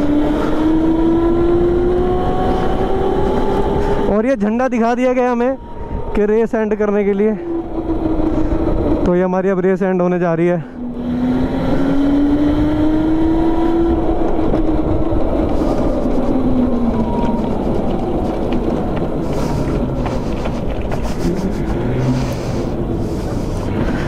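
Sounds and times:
go-kart engine running: 0:00.0 - 0:04.1, 0:07.4 - 0:09.2, 0:10.8 - 0:24.0
heavy low rumble: 0:00.7 - 0:24.0.

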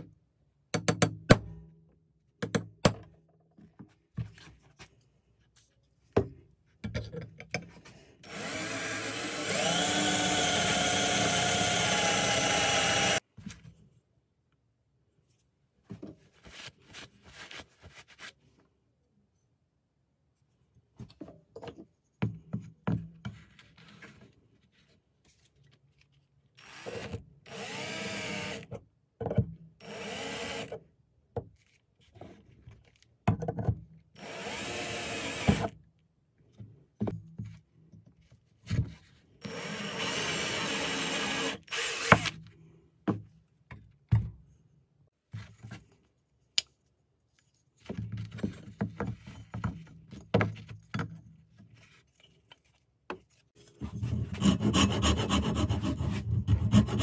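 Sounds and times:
cordless drill whining: 0:08.2 - 0:13.2, 0:26.6 - 0:28.7, 0:29.8 - 0:30.7, 0:34.2 - 0:35.7, 0:39.4 - 0:42.4.

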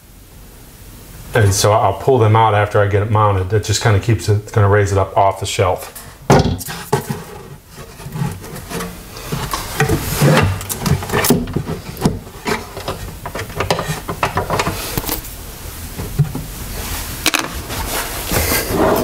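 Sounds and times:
wood knocking in a cabinet: 0:06.3 - 0:07.2
wood rubbing: 0:06.5 - 0:15.2.

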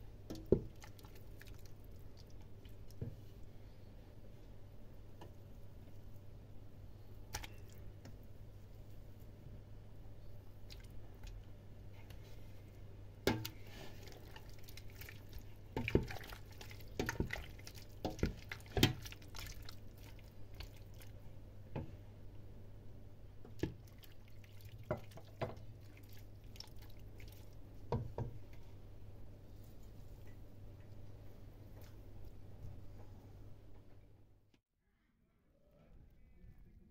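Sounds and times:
wet squelches of stirred pork fat: 0:00.0 - 0:03.6, 0:07.2 - 0:09.4, 0:10.4 - 0:21.9, 0:23.4 - 0:31.0.

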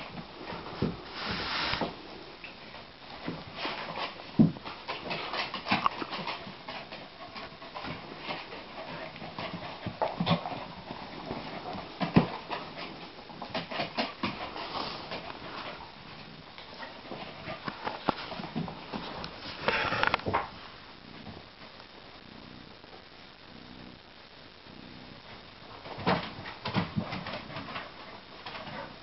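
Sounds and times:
dogs play-fighting on wooden floor: 0:00.0 - 0:20.6, 0:25.2 - 0:29.0
dull thumps of dogs bumping: 0:04.3 - 0:07.1.

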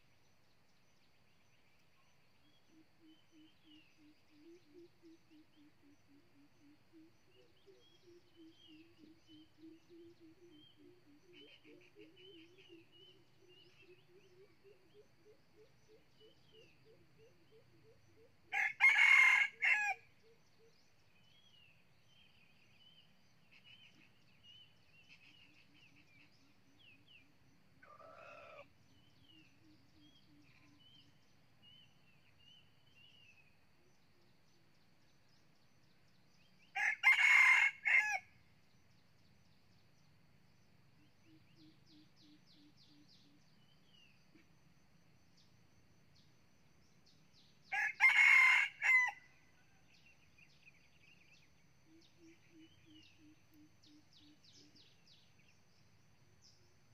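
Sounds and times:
rooster crowing: 0:18.5 - 0:20.0, 0:36.8 - 0:38.3, 0:47.7 - 0:49.3.

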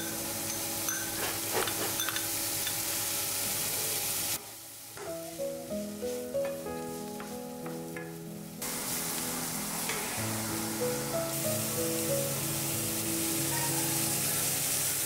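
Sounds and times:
vegetables sizzling in oil: 0:00.0 - 0:15.0
background music: 0:05.0 - 0:15.0.

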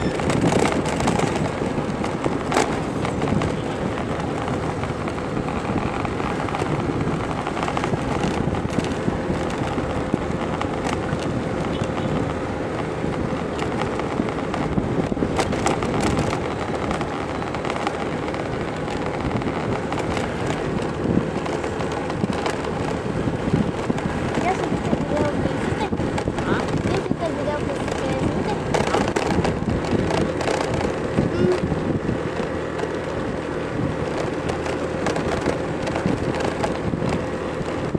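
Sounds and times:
street traffic: 0:00.0 - 0:37.9
wind on microphone: 0:00.0 - 0:37.9.

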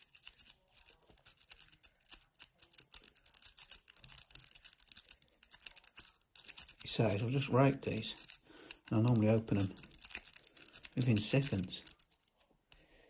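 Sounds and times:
lock pick metallic clicks: 0:07.9 - 0:12.3.

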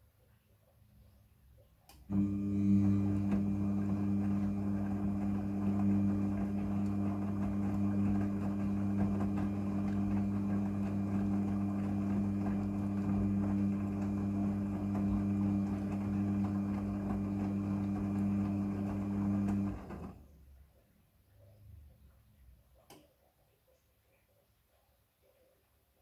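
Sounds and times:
washing machine tumbling clothes: 0:02.1 - 0:20.4.

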